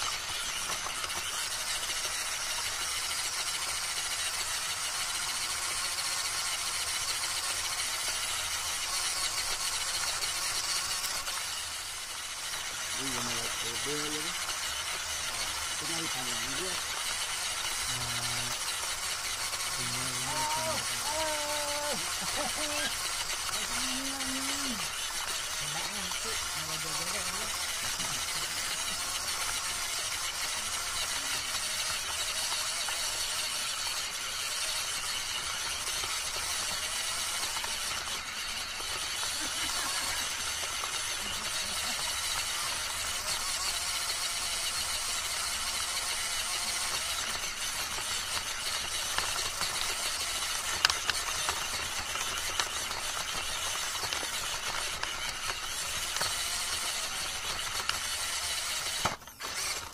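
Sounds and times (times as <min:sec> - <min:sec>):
rc car motor and gears whirring: 0:00.0 - 0:59.9.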